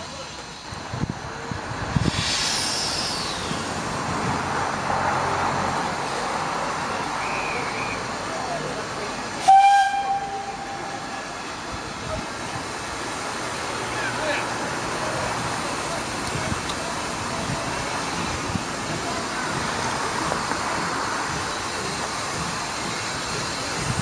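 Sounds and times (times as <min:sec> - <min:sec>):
locomotive hissing steam: 0:00.0 - 0:24.0
steam whistle blast: 0:09.4 - 0:11.1.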